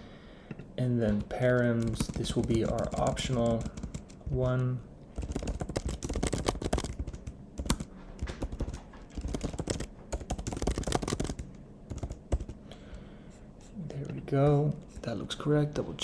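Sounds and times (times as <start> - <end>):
computer keyboard typing: 0.8 - 12.7.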